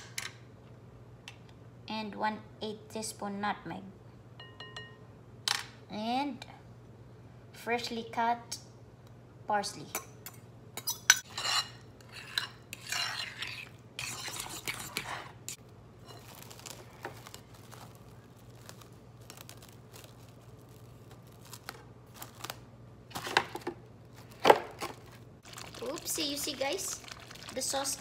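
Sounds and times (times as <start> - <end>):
spoon scraping in a bowl: 10.8 - 16.4.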